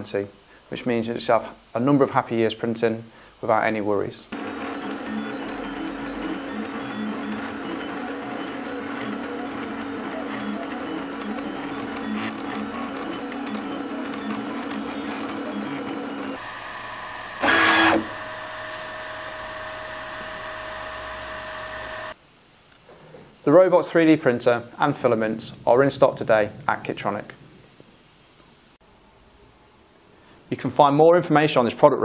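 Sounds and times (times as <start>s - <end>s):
three-d printer motors whirring: 4.3s - 22.2s.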